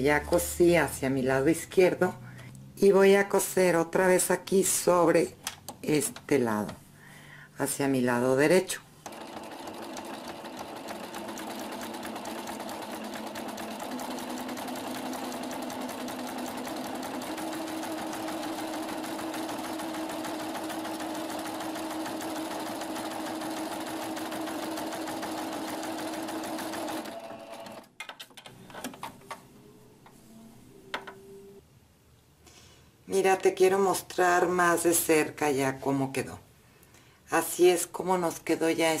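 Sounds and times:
sewing machine running: 9.1s - 27.9s.

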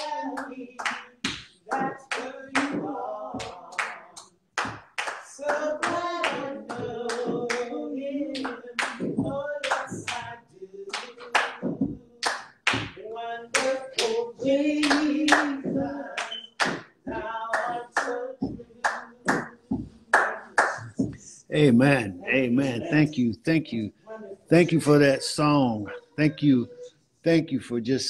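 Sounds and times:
hand clapping: 0.0s - 7.7s, 8.3s - 21.3s
gospel singing: 0.0s - 28.0s.

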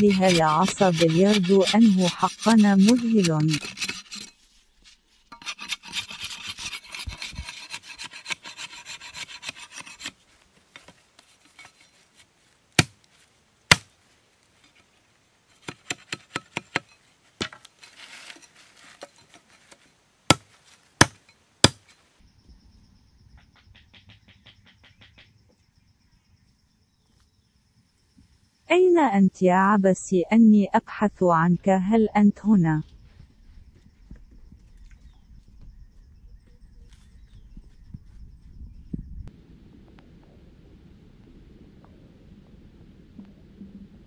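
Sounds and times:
knife shaving wooden stick: 0.0s - 12.3s, 17.6s - 19.8s.

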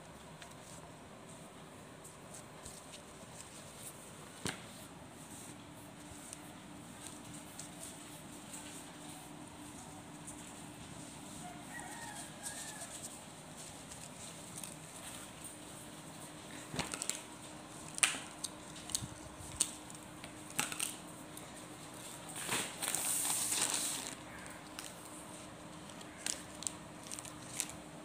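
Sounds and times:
plastic mailer bag crinkling: 16.7s - 25.2s, 25.8s - 27.8s.

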